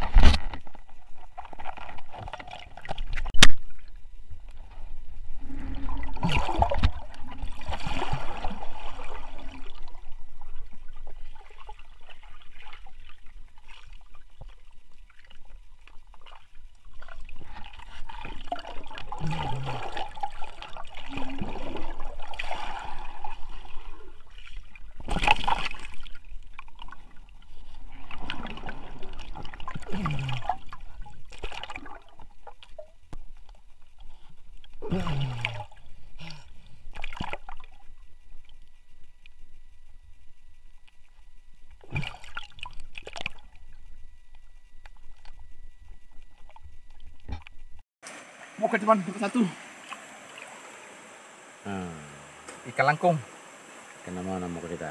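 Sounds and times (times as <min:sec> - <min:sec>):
water gurgling: 0:00.0 - 0:33.2, 0:34.8 - 0:38.5, 0:41.8 - 0:54.9
river water splashing: 0:16.2 - 0:26.9, 0:48.0 - 0:54.9.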